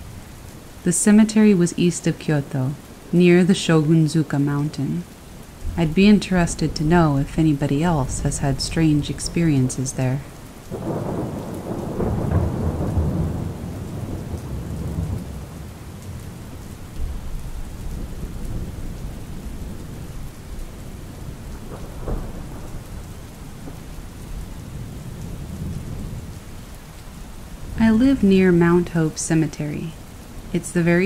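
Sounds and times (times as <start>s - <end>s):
steady rain: 0.0s - 31.0s
rolling thunder: 10.2s - 28.3s.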